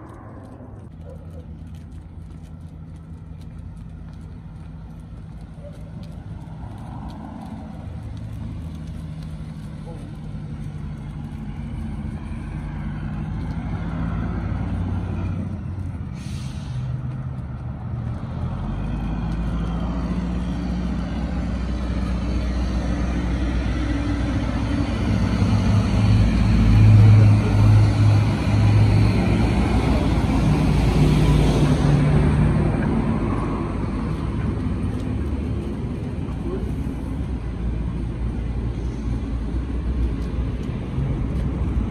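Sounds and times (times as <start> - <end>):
traffic engines humming: 0.0 - 41.9
short hiss: 16.2 - 16.9.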